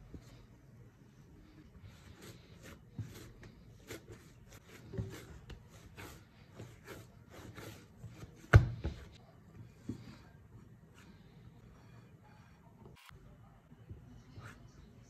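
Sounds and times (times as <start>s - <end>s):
dough rubbing and scraping: 1.3s - 13.0s
dough thumping: 4.8s - 9.2s.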